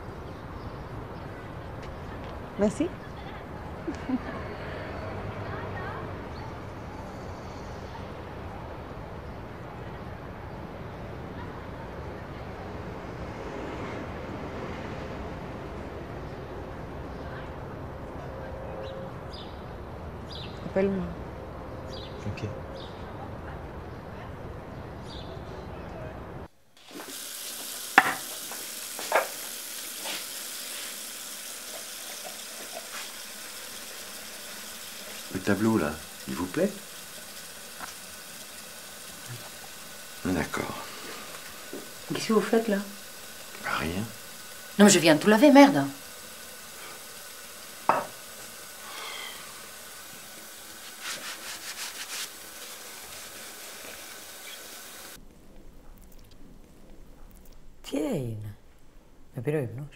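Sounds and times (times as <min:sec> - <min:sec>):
steady hiss: 0:26.5 - 0:59.9
tap running into sink: 0:26.8 - 0:34.2, 0:41.3 - 0:42.4, 0:47.8 - 0:48.4
scraping strokes: 0:50.8 - 0:52.3.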